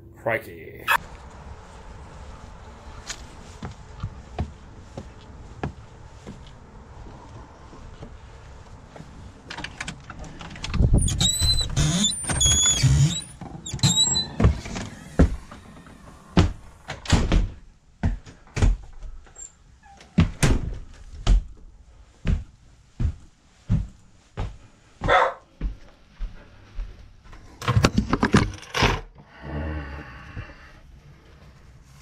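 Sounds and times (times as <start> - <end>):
slow footsteps on hard floor: 1.1 - 9.2, 17.5 - 19.2, 20.2 - 27.6
door squeaks and knocks: 10.8 - 17.2.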